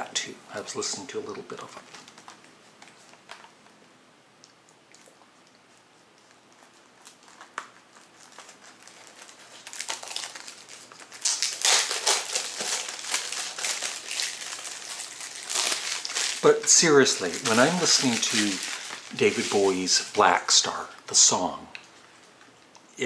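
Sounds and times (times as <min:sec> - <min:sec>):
plastic packaging crinkling: 0:01.1 - 0:03.6, 0:06.5 - 0:21.4.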